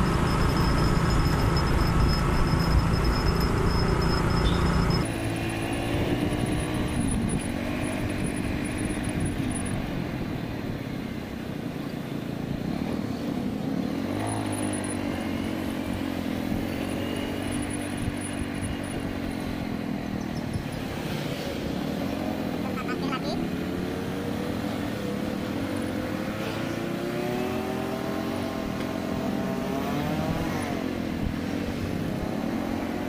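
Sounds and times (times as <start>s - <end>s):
motorcycle engine running: 0.0s - 9.9s
wind and road noise: 0.0s - 33.0s.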